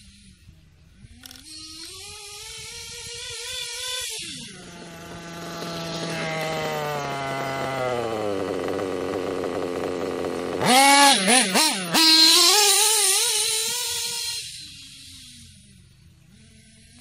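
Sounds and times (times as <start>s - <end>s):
model engine revving: 1.0s - 17.0s
model engine idling: 4.4s - 17.0s.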